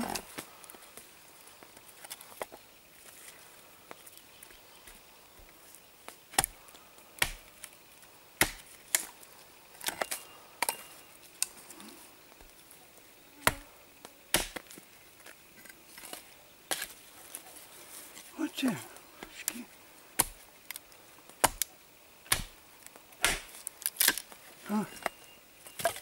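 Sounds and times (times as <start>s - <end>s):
axe chopping wood: 6.3s - 6.6s, 7.2s - 7.4s, 8.4s - 9.0s, 14.3s - 14.7s, 20.2s - 20.4s, 21.4s - 21.7s, 22.3s - 22.6s, 23.2s - 24.2s.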